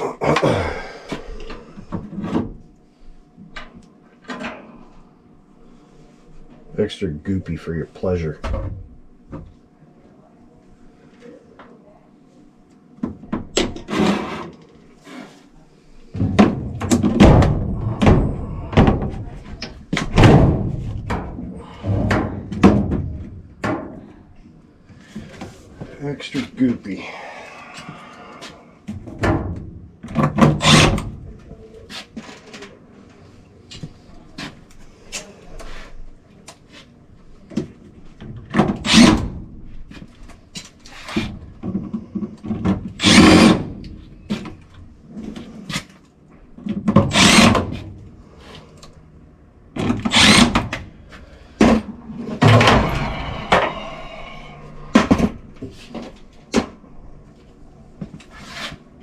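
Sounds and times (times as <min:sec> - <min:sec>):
cordless drill driving screws: 0:30.6 - 0:30.9, 0:38.8 - 0:39.2, 0:43.0 - 0:43.6, 0:47.1 - 0:47.6, 0:50.0 - 0:50.6.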